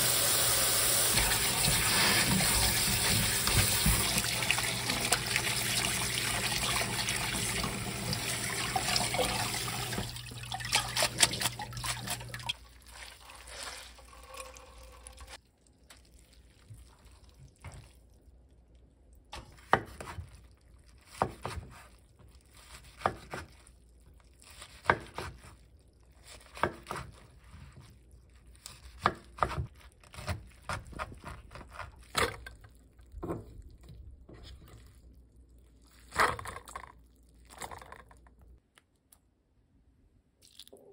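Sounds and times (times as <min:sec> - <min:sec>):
tap water running into colander: 0:00.0 - 0:15.4.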